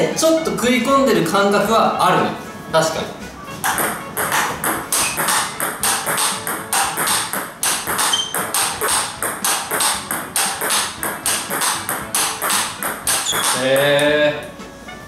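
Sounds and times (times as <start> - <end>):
ping pong ball bouncing on table: 3.6 - 14.2
ping pong ball hitting racket: 3.6 - 14.6.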